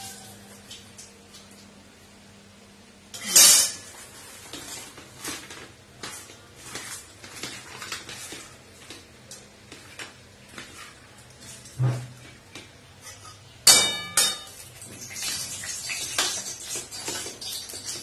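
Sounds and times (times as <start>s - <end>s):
metal pots and utensils clanking: 3.2s - 5.6s, 13.0s - 18.0s.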